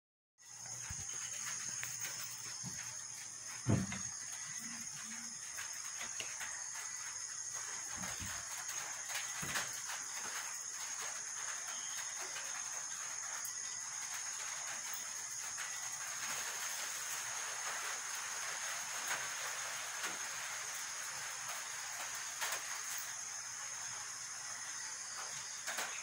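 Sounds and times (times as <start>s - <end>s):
high-pitched hiss: 0.4s - 26.0s.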